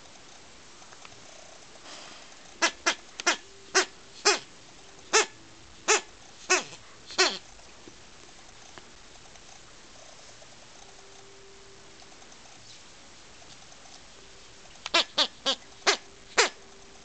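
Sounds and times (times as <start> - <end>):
toy squeaker squeaking: 2.6 - 4.5, 5.9 - 7.4, 14.9 - 16.6.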